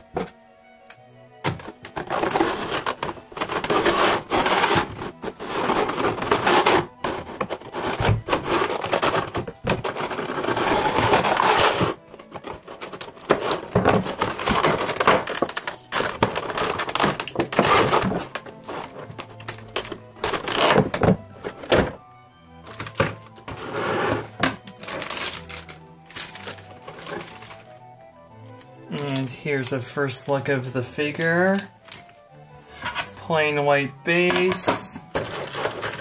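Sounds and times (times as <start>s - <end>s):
plastic packaging crinkling: 1.6s - 22.0s, 24.6s - 27.8s, 34.7s - 36.0s.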